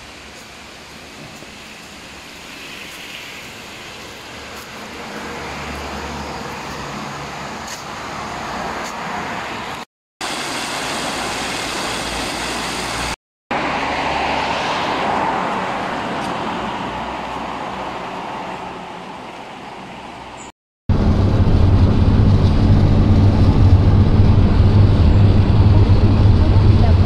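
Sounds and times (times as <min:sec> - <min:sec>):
passing vehicles: 0:01.4 - 0:09.9, 0:12.8 - 0:27.0
low engine hum: 0:20.9 - 0:27.0.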